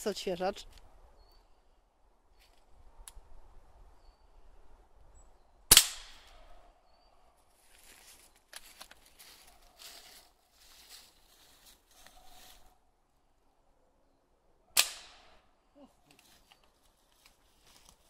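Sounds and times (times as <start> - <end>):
air rifle shot: 5.7 - 6.4, 14.8 - 15.4.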